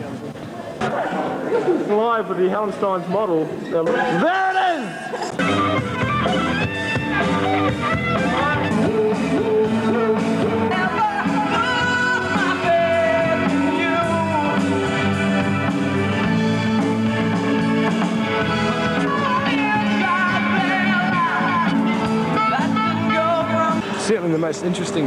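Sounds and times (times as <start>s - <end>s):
electric guitar: 5.1s - 24.1s
drums with steady beat: 5.3s - 23.9s
person singing: 5.4s - 24.0s.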